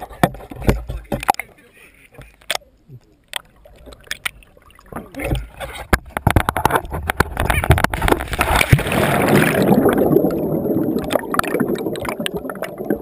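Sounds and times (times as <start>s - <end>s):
water splashing against camera: 0.0s - 13.0s
muffled underwater bubbling: 6.8s - 13.0s.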